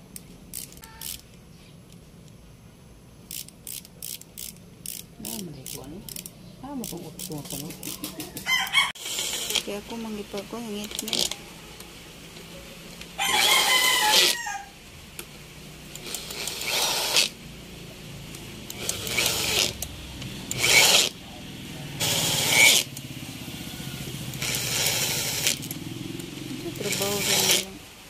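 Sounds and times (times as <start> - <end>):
power drill driving bolts: 9.0 - 9.7, 16.0 - 17.4, 18.7 - 19.9, 20.5 - 21.2, 22.0 - 22.9, 24.3 - 25.7, 26.8 - 27.7.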